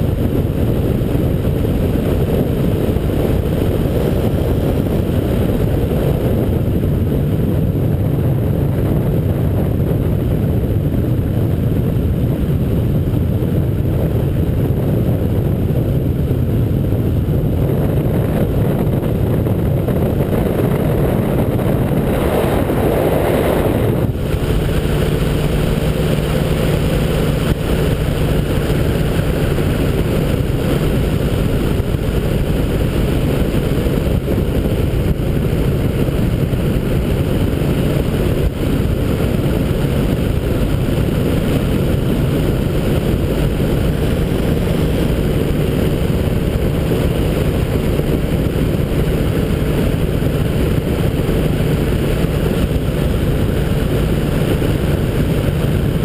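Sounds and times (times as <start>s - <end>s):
small aircraft engine drone: 0.0s - 56.0s
wind rush on microphone: 0.0s - 56.0s.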